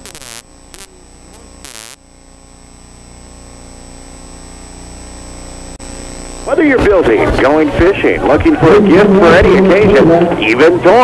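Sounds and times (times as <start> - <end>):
static bursts with warbling whistles: 0.0 - 1.0, 1.6 - 2.0
electrical hum and buzz: 0.0 - 11.0
thin high whine: 0.0 - 11.0.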